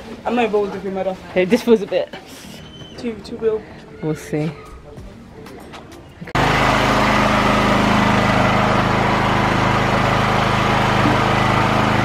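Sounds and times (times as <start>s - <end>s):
generator engine droning: 6.2s - 12.0s.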